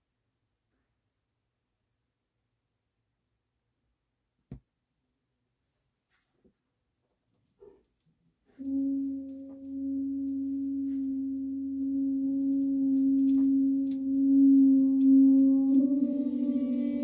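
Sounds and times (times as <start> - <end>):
trombone holding a long note: 8.6 - 17.0.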